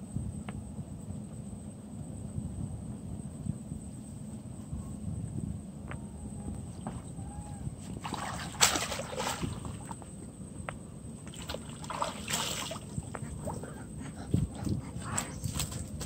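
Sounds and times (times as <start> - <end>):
water splashing and sloshing: 7.8 - 10.3, 11.2 - 16.0
water running off net: 8.0 - 9.9, 11.3 - 13.0.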